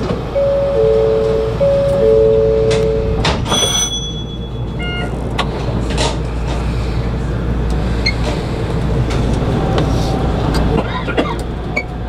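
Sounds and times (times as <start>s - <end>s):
train low hum: 0.0s - 12.0s
two-note warning tone: 0.4s - 5.2s
short high chime: 3.5s - 5.1s.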